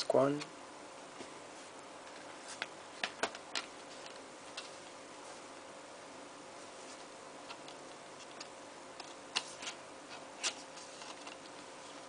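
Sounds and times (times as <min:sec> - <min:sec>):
faint steady hum: 0:00.0 - 0:12.0
discs and sleeves clicking: 0:02.0 - 0:05.0, 0:07.4 - 0:11.6.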